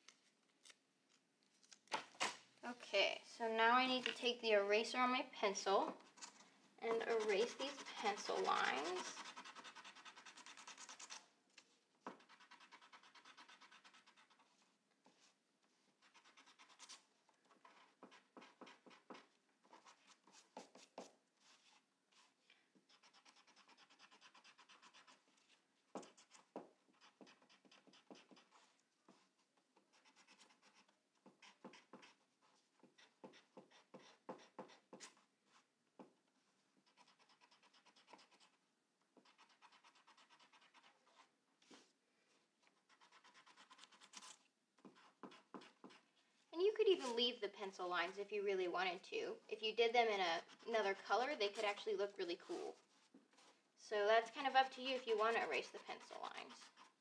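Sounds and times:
eraser rubbing on paper: 6.9 - 11.3, 12.0 - 35.7, 36.8 - 38.6, 39.2 - 41.9, 42.7 - 46.1, 46.8 - 47.4, 50.3 - 53.5, 54.2 - 57.0.

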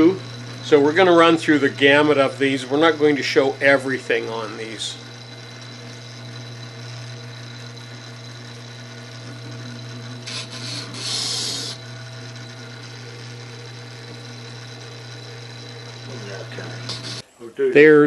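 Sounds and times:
grinder humming: 0.0 - 17.6
steel scraping on stone: 10.1 - 12.0, 15.9 - 17.2.

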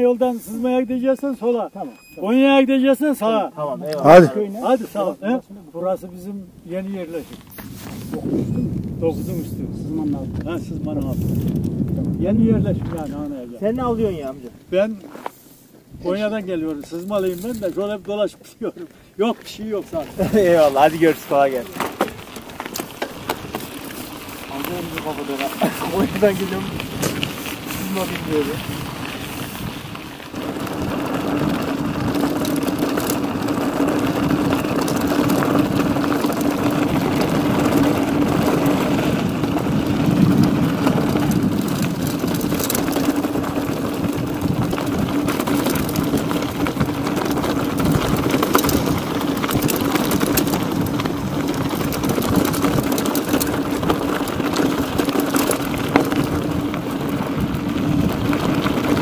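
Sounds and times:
bicycle tyre hum: 4.0 - 59.0
small clicks and rattles: 20.0 - 59.0.

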